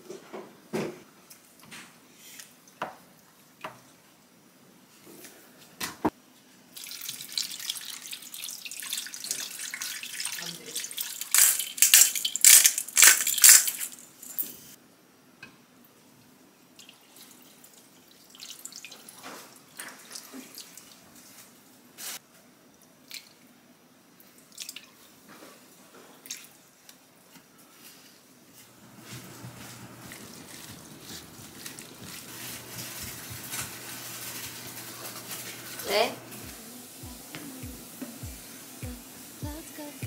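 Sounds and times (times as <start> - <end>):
liquid pouring into a pot: 6.8 - 12.4.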